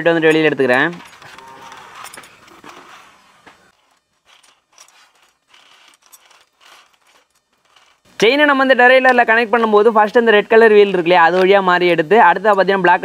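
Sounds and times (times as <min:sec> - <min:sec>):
chain rattling in a pipe: 0:00.0 - 0:08.1.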